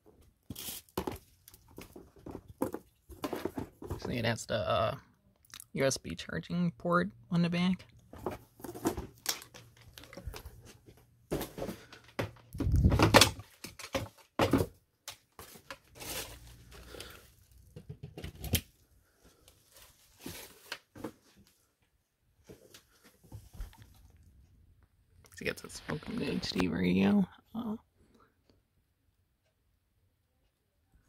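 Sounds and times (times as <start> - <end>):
rustling and crinkling plastic: 0.3 - 4.4, 8.1 - 21.7.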